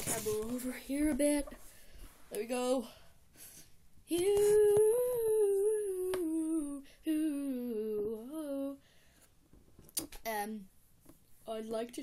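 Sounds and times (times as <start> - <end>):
person humming: 4.1 - 8.8.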